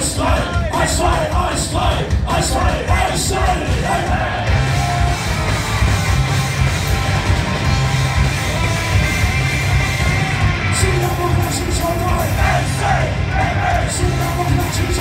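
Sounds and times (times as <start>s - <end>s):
shouted vocals: 0.0s - 5.3s, 9.6s - 15.0s
punk rock band playing: 0.0s - 15.0s.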